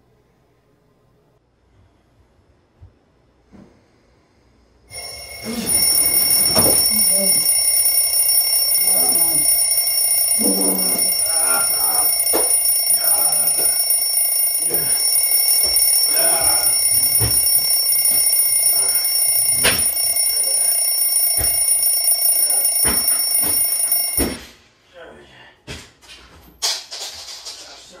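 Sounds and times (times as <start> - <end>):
alarm clock ringing: 4.9 - 24.4.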